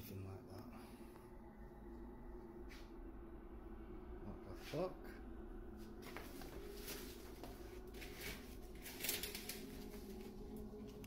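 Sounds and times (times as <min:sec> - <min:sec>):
faint steady hum: 0:00.0 - 0:11.0
blind slats rustling and knocking: 0:06.0 - 0:10.4.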